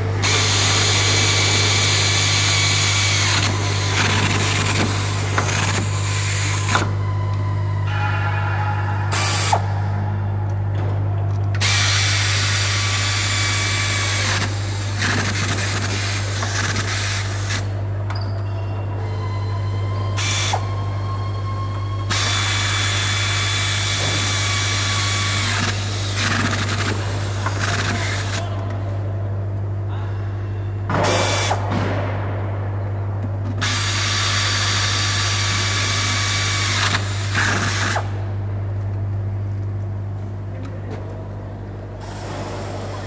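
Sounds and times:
steady low hum: 0.0 - 43.0
pneumatic tool driving bolts: 0.2 - 7.0, 11.5 - 17.7, 22.1 - 28.4, 31.0 - 31.6, 33.6 - 38.1.

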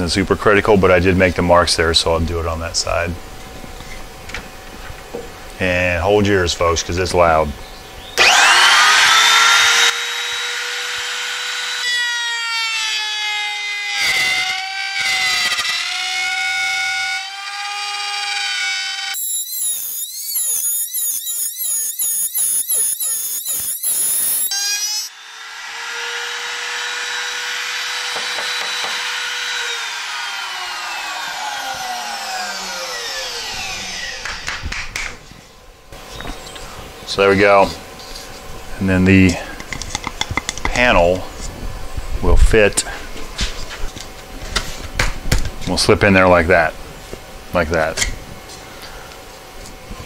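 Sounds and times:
motor spinning down: 8.2 - 35.2
router bit cutting wood: 8.2 - 35.2
router motor whining: 8.2 - 35.3.

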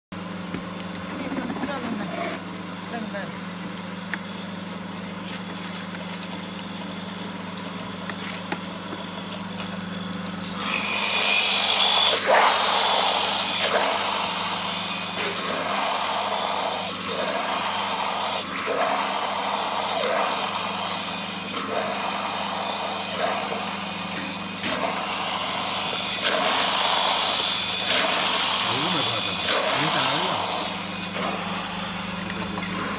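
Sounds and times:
grinding machine humming: 0.2 - 32.9
harsh grinding of wet grains: 10.4 - 32.9.

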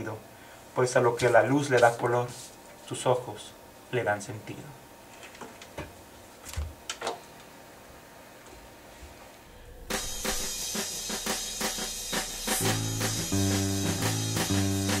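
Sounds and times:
recorded band music with drums: 9.8 - 15.0.

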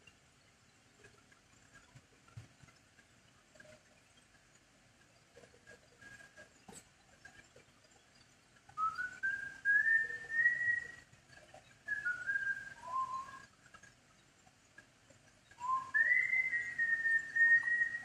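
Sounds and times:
person whistling a slow tune: 8.8 - 11.1, 11.9 - 13.5, 15.6 - 18.0.

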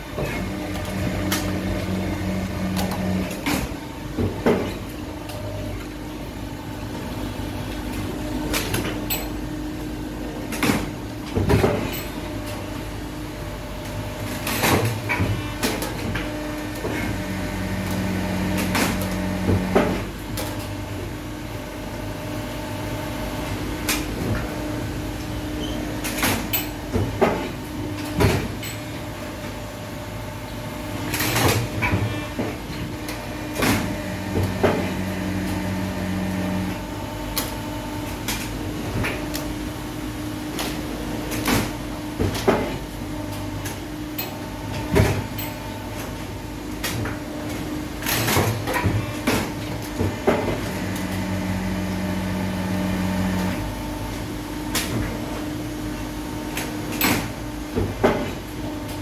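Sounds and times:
machine hydraulic drone: 0.0 - 3.8.

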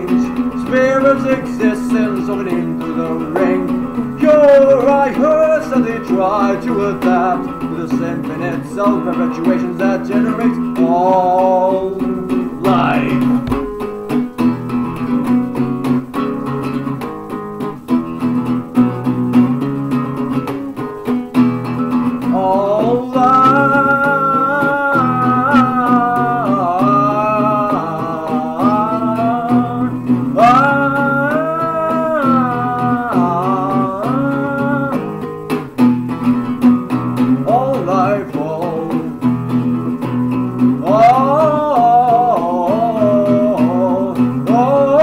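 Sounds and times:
man singing: 0.0 - 13.8, 22.2 - 35.7, 37.2 - 45.0
acoustic guitar strumming: 0.0 - 45.0.

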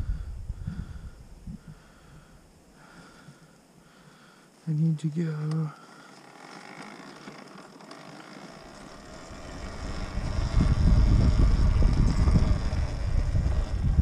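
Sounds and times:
wind buffeting microphone: 0.0 - 2.4, 8.9 - 14.0.

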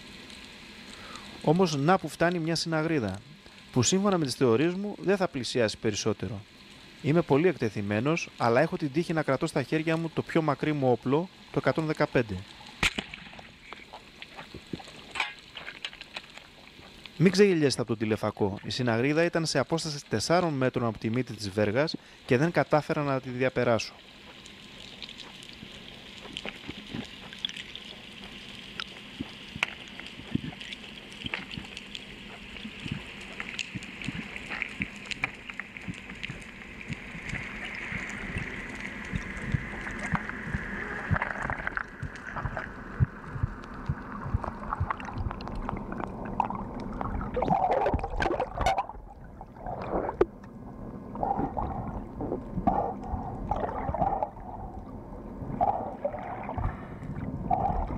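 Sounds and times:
underwater hiss: 0.6 - 1.5
water bubbling and gurgling: 24.0 - 57.9
underwater clicks crackling: 24.3 - 49.0.

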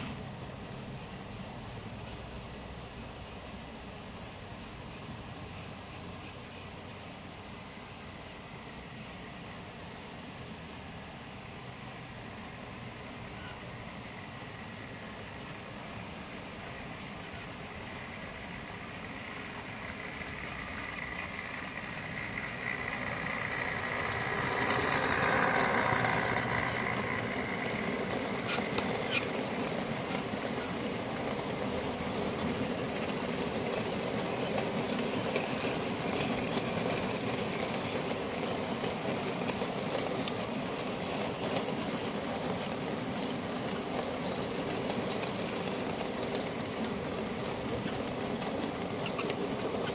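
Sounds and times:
model locomotive motor hum: 0.0 - 49.9
model wagons rumbling: 0.0 - 49.9
wheels clicking over points: 11.5 - 49.9.

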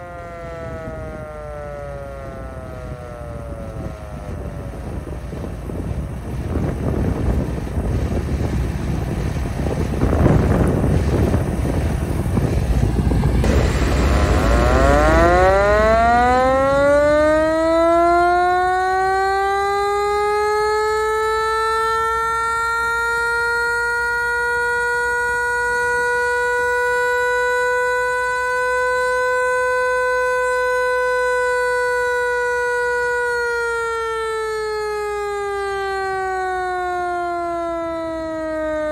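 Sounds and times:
wind buffeting microphone: 0.0 - 38.9
siren winding up: 13.4 - 38.9.

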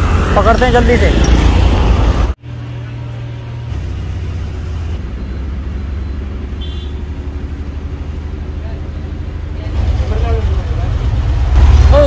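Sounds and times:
bus engine humming: 0.0 - 12.0.

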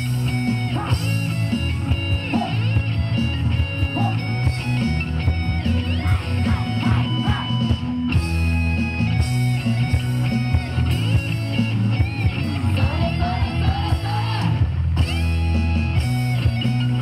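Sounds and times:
upbeat rock dance music: 0.0 - 17.0.

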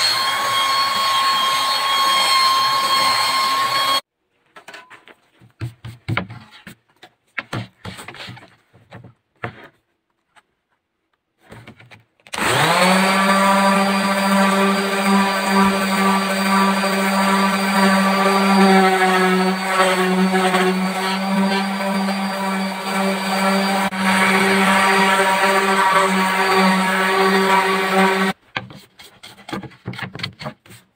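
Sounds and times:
orbital sander sanding wood: 12.4 - 28.4.

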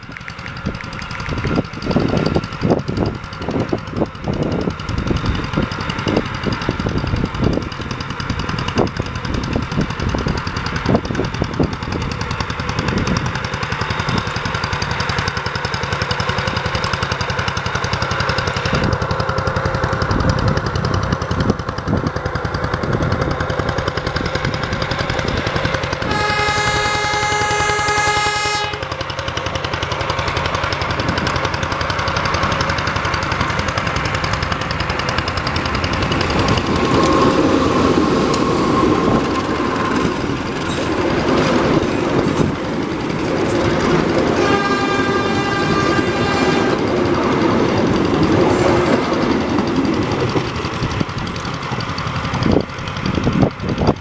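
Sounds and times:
diesel locomotive engine running: 0.0 - 54.0
locomotive horn blast: 26.0 - 29.0, 44.3 - 47.0.

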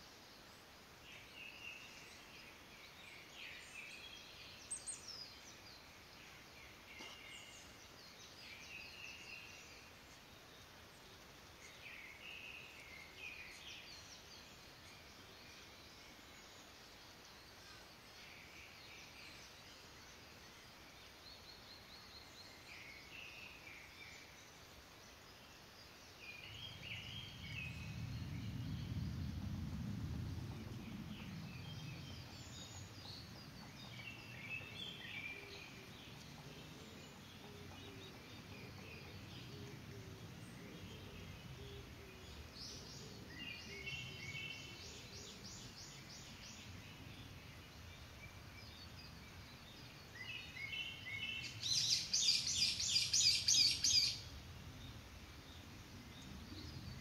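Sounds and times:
small birds chirping: 0.0 - 57.0
low rumble: 26.7 - 34.7.

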